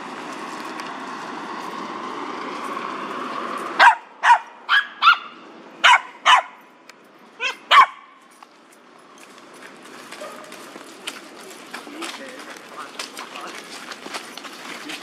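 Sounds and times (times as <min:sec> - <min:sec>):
dog barking: 0:03.8 - 0:06.6, 0:07.4 - 0:08.2, 0:10.2 - 0:10.6.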